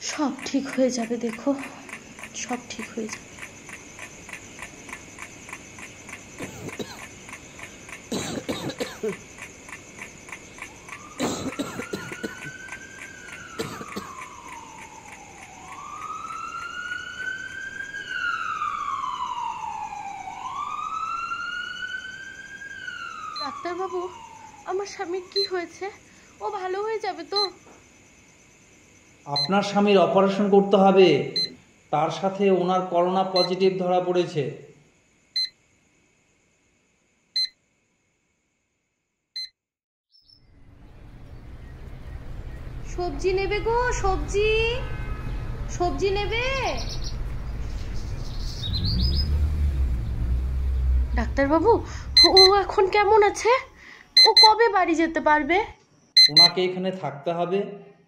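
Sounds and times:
street ambience: 0.0 - 17.4, 40.5 - 55.7
ambulance siren wailing: 10.6 - 25.5, 41.2 - 54.7
patient monitor beep: 25.3 - 25.6, 27.3 - 27.6, 29.3 - 29.8, 31.4 - 31.6, 33.3 - 33.6, 35.4 - 35.6, 37.4 - 37.6, 52.2 - 53.3, 54.1 - 54.8, 56.2 - 56.6
high chirp: 44.6 - 53.2, 56.2 - 56.6.

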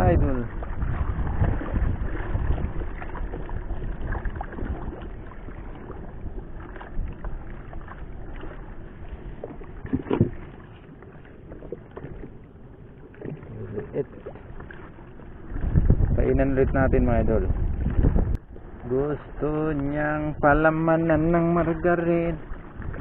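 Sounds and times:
water lapping against boat hull: 0.0 - 23.0
knocks on boat: 9.8 - 10.5.

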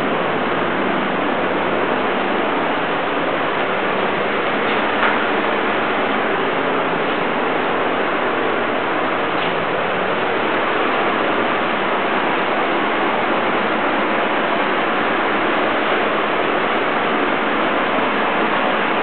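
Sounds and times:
loud steady hiss: 0.0 - 19.0.

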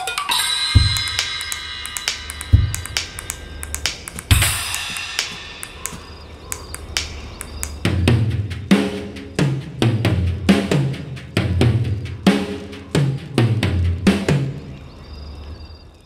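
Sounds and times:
tom and bass drum strokes: 0.8 - 6.1
light drum taps: 0.8 - 7.9.

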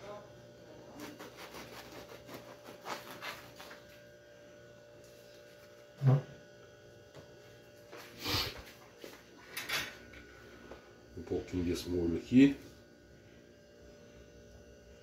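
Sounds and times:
steady low hum: 0.0 - 15.0
knife cutting bread crust: 0.8 - 4.1.

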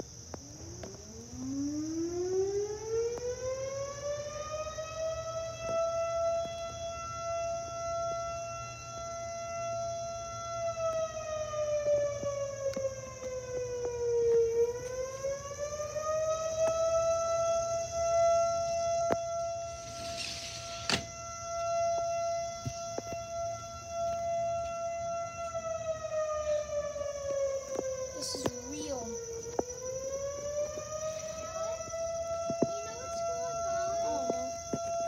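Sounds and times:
siren wailing: 0.5 - 35.0
brief hiss: 19.8 - 21.0.

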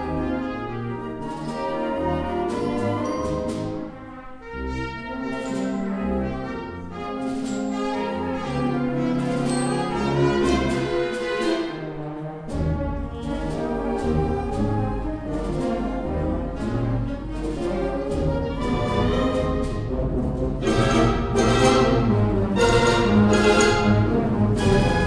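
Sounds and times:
concert band playing tango: 0.0 - 25.0.

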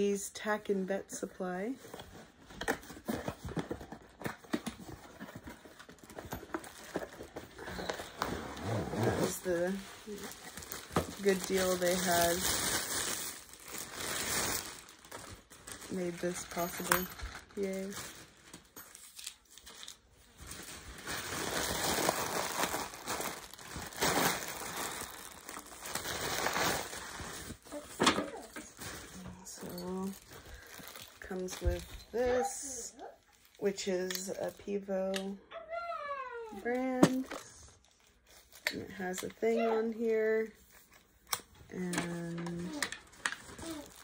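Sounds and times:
plastic bag crinkling: 3.2 - 32.6, 42.0 - 44.0.

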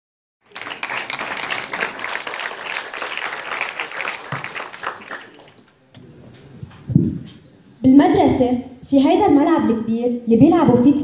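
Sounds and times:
audience applauding: 0.4 - 5.7.

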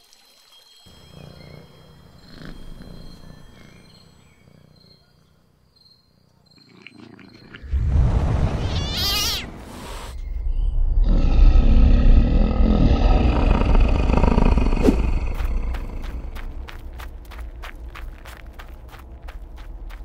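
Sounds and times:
cat purring: 1.0 - 5.4, 12.4 - 16.9.

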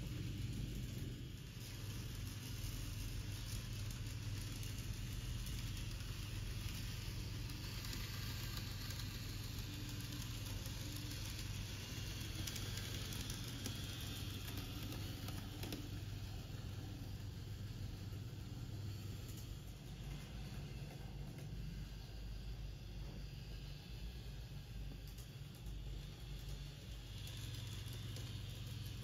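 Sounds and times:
model train humming and hissing: 0.0 - 29.0.

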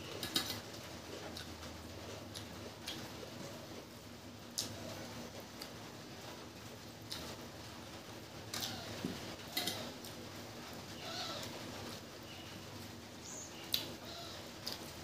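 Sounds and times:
chewing: 0.1 - 3.3, 7.1 - 7.4
bird calling: 11.0 - 11.6, 13.2 - 14.5.

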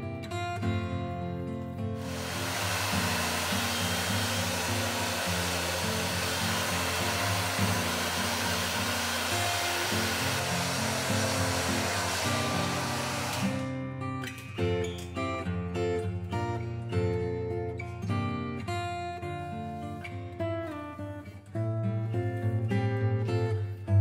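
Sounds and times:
hair dryer blowing: 2.0 - 13.7.

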